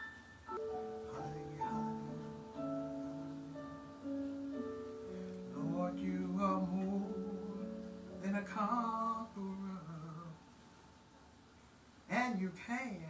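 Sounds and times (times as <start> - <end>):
instrumental backing with held notes: 0.0 - 9.4.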